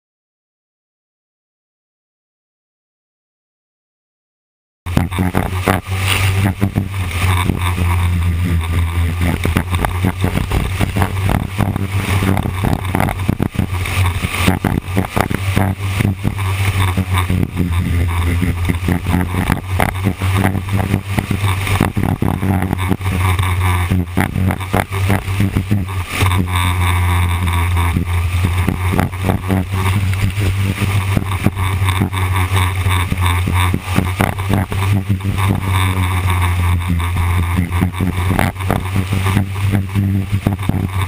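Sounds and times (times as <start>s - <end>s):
engine crackles: 4.9s - 41.0s
race car engine drone: 4.9s - 41.0s.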